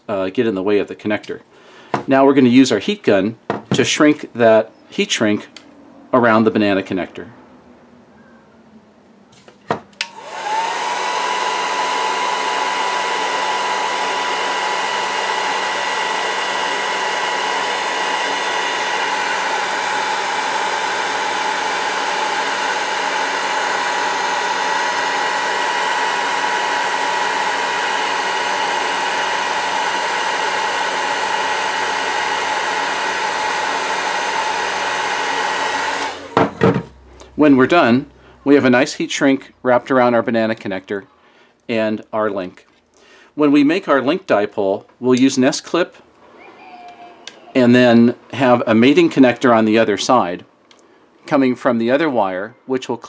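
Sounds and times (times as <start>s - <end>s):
heat gun fan whine: 9.9s - 37.7s.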